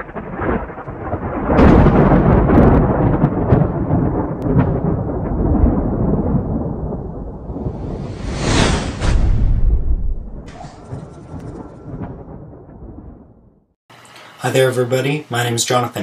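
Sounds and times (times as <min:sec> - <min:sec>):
thunder-like rumble: 0:00.0 - 0:13.8.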